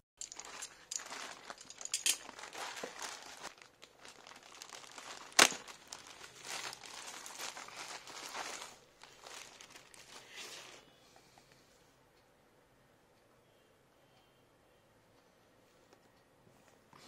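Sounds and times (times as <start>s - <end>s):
plastic bag crinkling and tearing: 0.2s - 10.4s.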